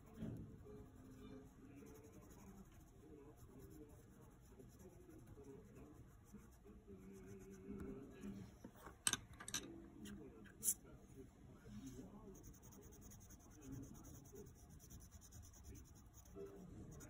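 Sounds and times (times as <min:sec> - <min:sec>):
pencil strokes on paper: 0:00.0 - 0:07.7, 0:11.8 - 0:17.0.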